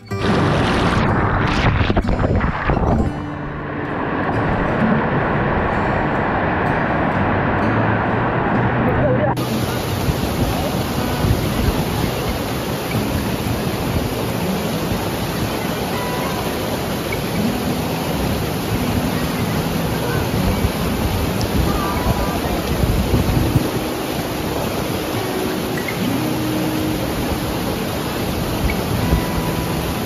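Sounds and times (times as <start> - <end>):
rushing water: 0.0 - 30.0
faint distant voices: 8.8 - 14.4, 15.0 - 26.5.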